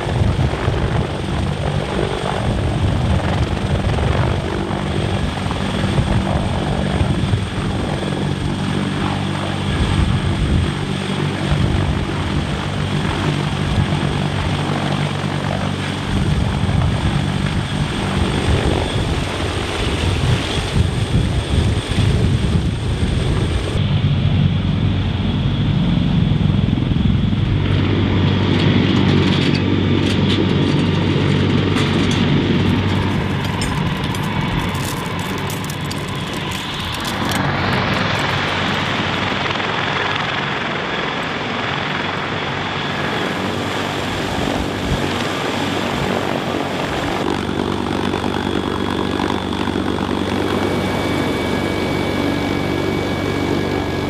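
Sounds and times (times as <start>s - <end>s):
helicopter engines and rotors: 0.0s - 54.0s
rotor wash noise: 31.6s - 54.0s.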